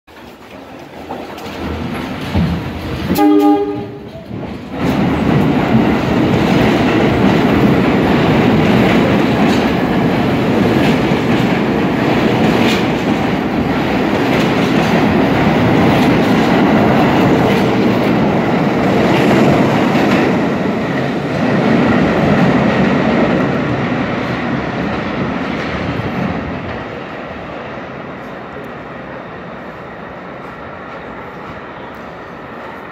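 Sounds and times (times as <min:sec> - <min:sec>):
wheels clicking over rail joints: 0:00.1 - 0:23.2
subway train rumbling: 0:00.1 - 0:32.9.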